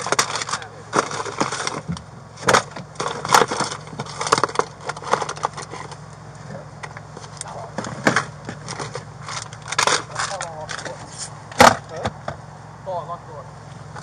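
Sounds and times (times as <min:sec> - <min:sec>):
papers and objects rustling: 0:00.0 - 0:06.0, 0:07.1 - 0:11.4
steady low hum: 0:00.0 - 0:14.0.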